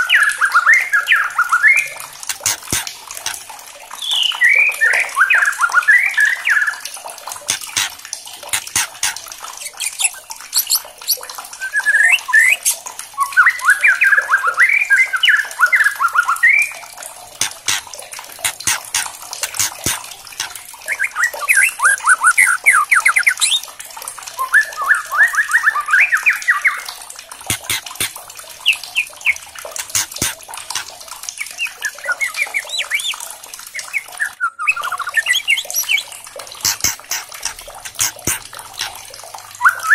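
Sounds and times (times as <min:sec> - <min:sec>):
bird rattling notes: 0:02.2 - 0:03.4, 0:07.5 - 0:11.2, 0:17.4 - 0:20.6, 0:36.6 - 0:39.0
bird whistling song: 0:04.0 - 0:06.7, 0:09.6 - 0:16.8, 0:20.9 - 0:23.6, 0:24.4 - 0:26.9, 0:31.6 - 0:33.2, 0:33.8 - 0:38.4, 0:39.6 - 0:39.9.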